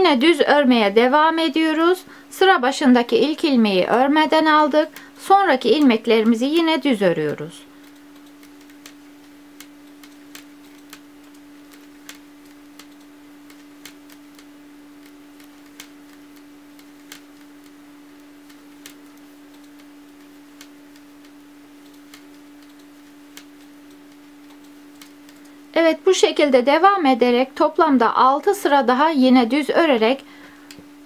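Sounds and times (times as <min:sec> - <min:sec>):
steady low hum: 0:00.0 - 0:31.0
knitting needles clicking: 0:04.3 - 0:25.6.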